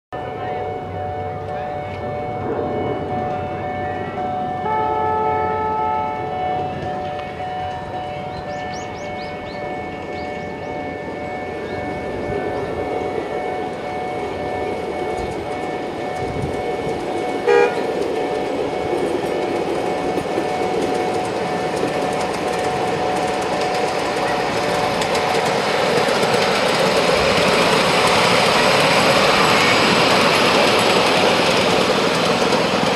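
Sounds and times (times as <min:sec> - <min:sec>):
miniature train running on track: 0:00.2 - 0:32.9
train horn toot: 0:04.6 - 0:06.4, 0:17.4 - 0:18.0.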